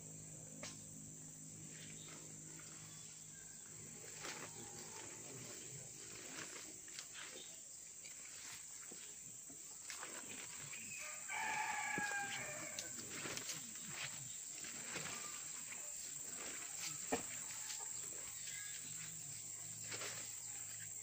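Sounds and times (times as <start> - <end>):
footsteps rustling and clicking: 3.7 - 21.0
rooster crowing: 10.9 - 13.0.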